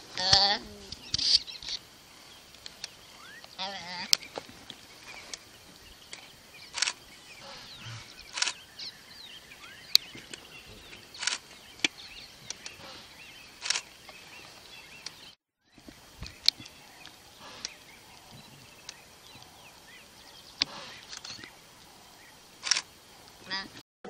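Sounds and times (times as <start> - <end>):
bird chirps: 0.6 - 23.7
sharp clicks: 6.1 - 7.0, 7.8 - 8.6, 11.2 - 12.9, 13.6 - 14.2, 16.2 - 19.5, 20.6 - 21.5, 22.6 - 23.4.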